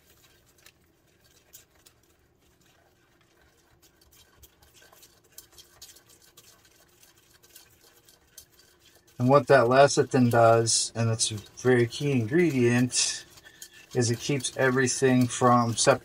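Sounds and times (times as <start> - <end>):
whisk clicking in saucepan: 2.6 - 16.0.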